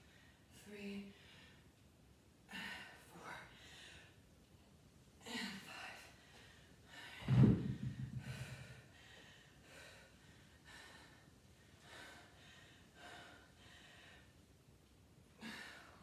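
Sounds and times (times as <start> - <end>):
woman gasping breaths: 5.3 - 14.4
thud: 7.2 - 8.8.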